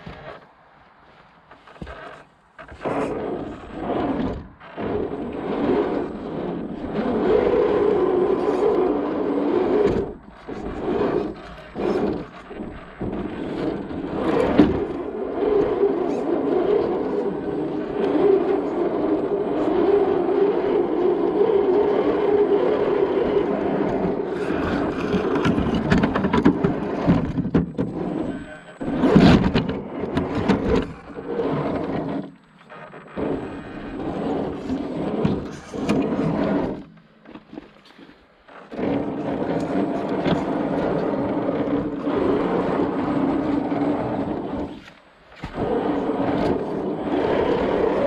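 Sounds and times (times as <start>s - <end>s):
tyres scraping on rough ground: 0.0s - 48.0s
electric motor and gearbox whining: 1.5s - 37.8s.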